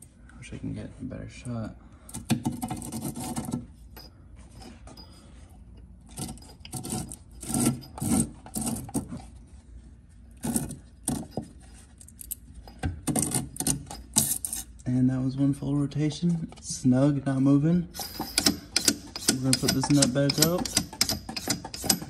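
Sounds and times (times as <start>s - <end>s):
threaded nut rasping and scraping: 2.2s - 9.5s, 10.3s - 14.8s, 18.0s - 22.0s.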